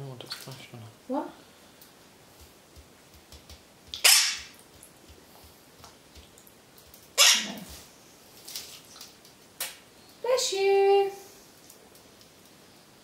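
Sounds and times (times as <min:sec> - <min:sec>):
parrot harsh bursts: 0:04.0 - 0:04.5, 0:07.2 - 0:07.7.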